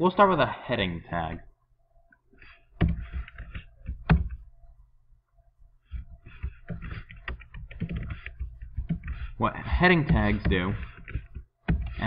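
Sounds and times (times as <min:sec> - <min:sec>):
keyboard typing: 0:02.8 - 0:04.5, 0:05.8 - 0:12.0.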